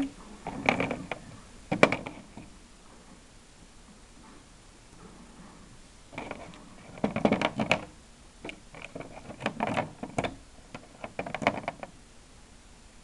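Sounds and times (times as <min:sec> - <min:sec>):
plastic toy robots clattering: 0:00.4 - 0:02.5, 0:06.2 - 0:07.9, 0:08.5 - 0:11.9.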